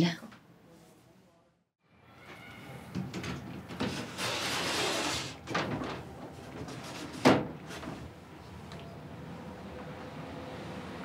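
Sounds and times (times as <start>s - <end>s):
wooden sliding door scraping: 3.6s - 8.2s.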